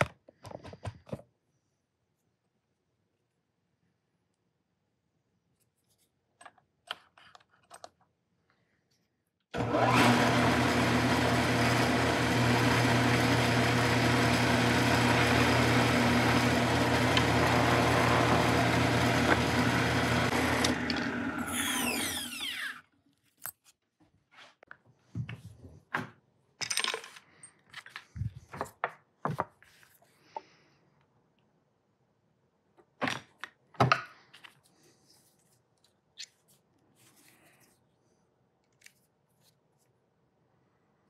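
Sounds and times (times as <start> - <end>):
drill spinning down whine: 9.6 - 22.8
power drill drilling into metal: 9.6 - 22.8.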